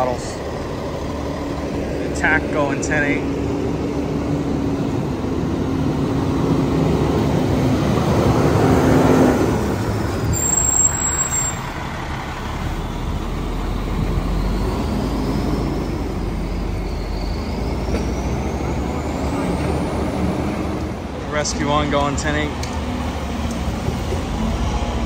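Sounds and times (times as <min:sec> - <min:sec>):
fire truck diesel engine: 0:00.0 - 0:25.0.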